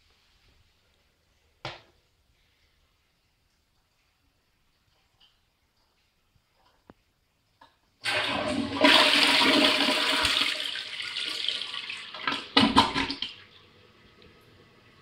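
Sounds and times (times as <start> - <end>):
toilet flushing: 8.0 - 15.0
water gulping in toilet bowl: 12.1 - 13.5.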